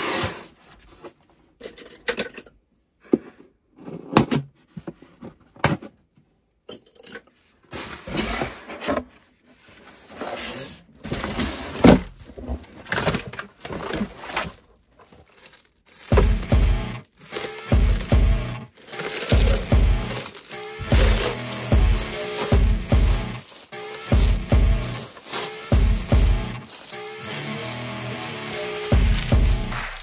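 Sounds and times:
cardboard rustling and scraping: 0:07.7 - 0:30.0.

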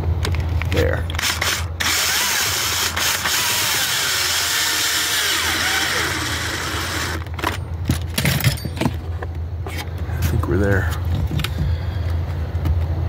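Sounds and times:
power drill driving screw: 0:01.2 - 0:07.6.

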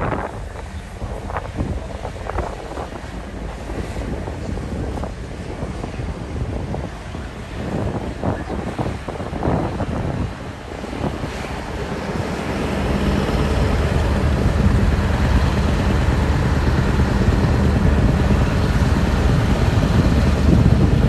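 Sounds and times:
diesel truck engine passing: 0:11.5 - 0:21.0.

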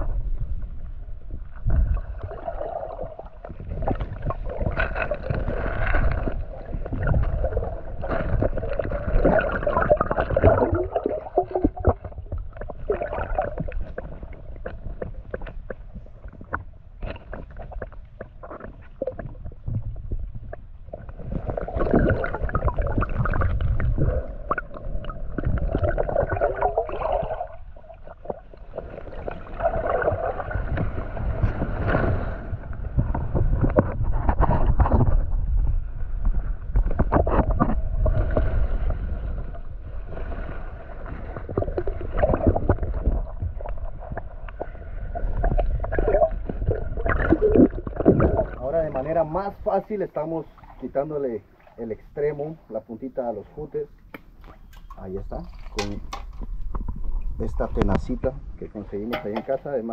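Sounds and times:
river water sloshing and gurgling: 0:01.6 - 0:19.7, 0:20.9 - 0:35.4, 0:54.3 - 0:57.5
low rumble: 0:19.0 - 0:49.8.

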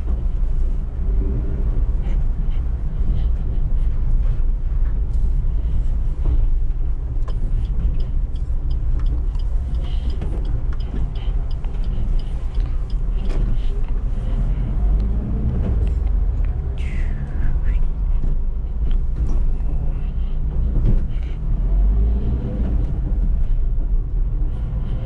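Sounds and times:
car engine rumbling: 0:00.0 - 0:25.0
road noise: 0:00.0 - 0:25.0
faint irregular ticks: 0:07.2 - 0:15.1.

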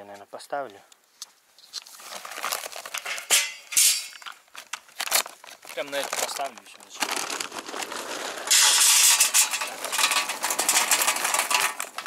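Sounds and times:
charcoal clattering into grill: 0:02.9 - 0:04.3, 0:08.4 - 0:12.0.

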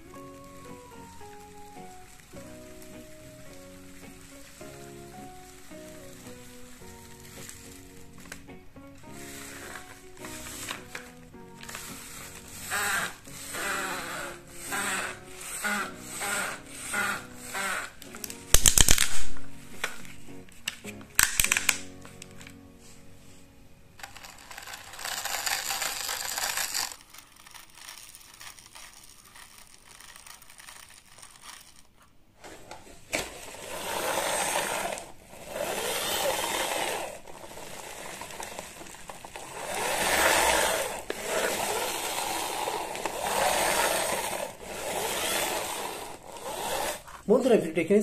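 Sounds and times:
toy wheels and gears whirring: 0:00.0 - 0:19.2, 0:21.2 - 0:21.8, 0:24.0 - 0:47.4
toy excavator arm clicks: 0:09.3 - 0:19.3, 0:21.2 - 0:22.4, 0:24.0 - 0:32.0, 0:33.2 - 0:47.2.

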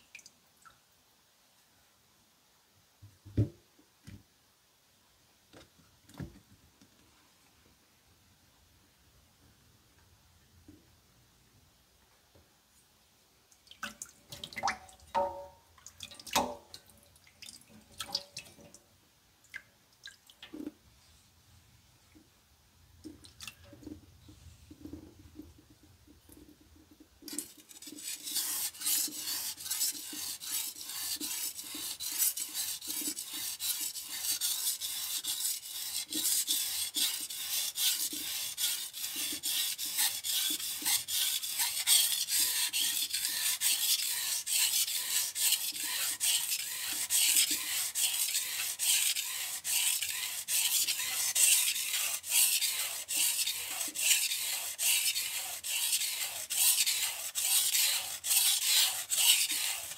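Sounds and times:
knife scraping on whetstone: 0:27.3 - 0:59.9.

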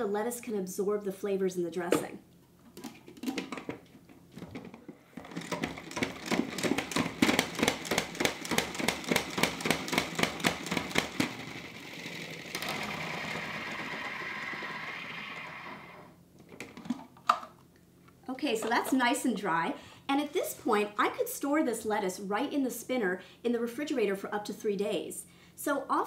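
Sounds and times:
salad spinner basket whirring: 0:05.1 - 0:16.2.

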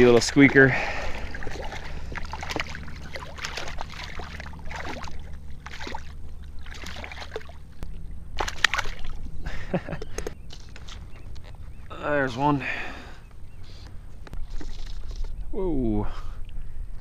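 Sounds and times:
low rumble: 0:00.0 - 0:15.6
fish splashing in water: 0:00.9 - 0:09.3.

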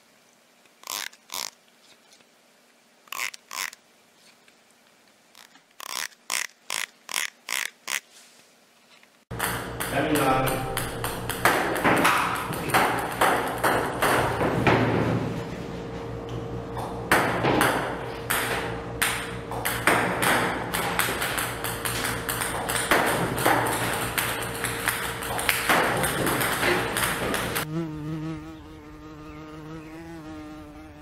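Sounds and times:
table tennis balls bouncing on table: 0:09.3 - 0:15.2, 0:16.8 - 0:27.7.

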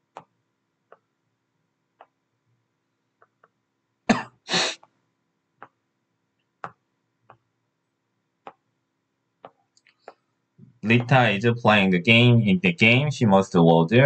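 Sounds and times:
person coughing: 0:04.1 - 0:04.8.

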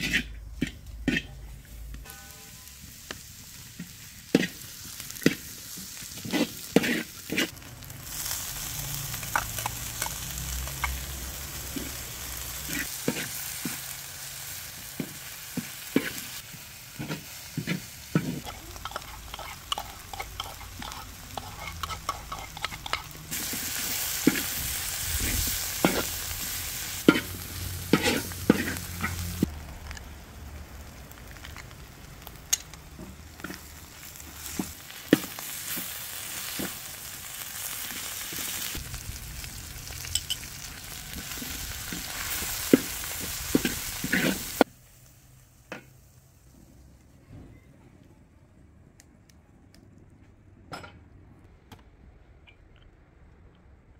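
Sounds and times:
metal ladle scraping a wok: 0:00.0 - 0:02.6, 0:06.2 - 0:07.5, 0:17.0 - 0:29.4
greens sizzling in oil: 0:00.0 - 0:46.8.

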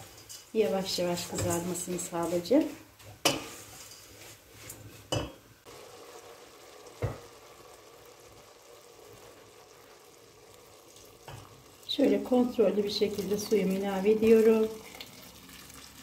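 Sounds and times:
noodles sizzling in oil: 0:00.0 - 0:16.0
wooden spoon knocking on pot: 0:07.0 - 0:07.3.

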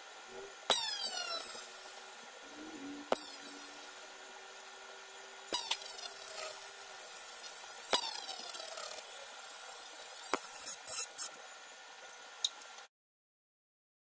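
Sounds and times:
laser cutting hiss: 0:00.0 - 0:11.4.

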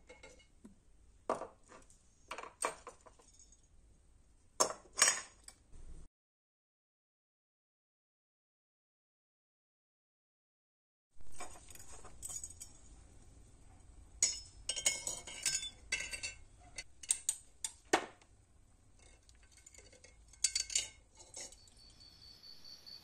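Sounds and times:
metal clinking against glass jar: 0:11.3 - 0:12.9, 0:14.2 - 0:17.4, 0:19.0 - 0:22.0.

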